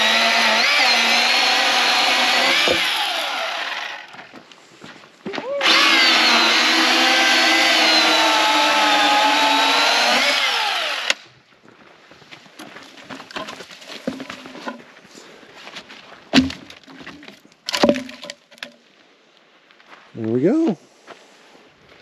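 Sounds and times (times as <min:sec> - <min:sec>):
chainsaw cutting a log: 0:00.0 - 0:04.2, 0:05.6 - 0:11.2
heavy thumps: 0:02.3 - 0:03.0
wooden knocks: 0:02.4 - 0:03.0, 0:16.4 - 0:18.8.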